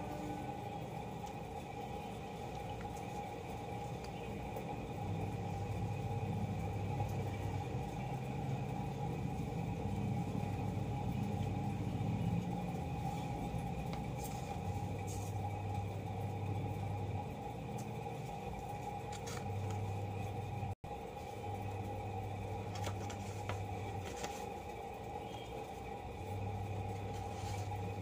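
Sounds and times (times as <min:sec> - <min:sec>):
faint constant hum: 0:00.0 - 0:28.0.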